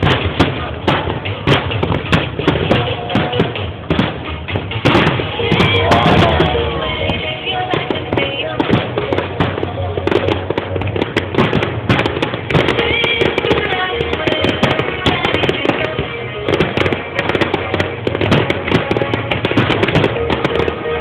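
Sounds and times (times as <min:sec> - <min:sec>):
fireworks bursting and crackling: 0:00.0 - 0:21.0
music playing: 0:00.0 - 0:21.0.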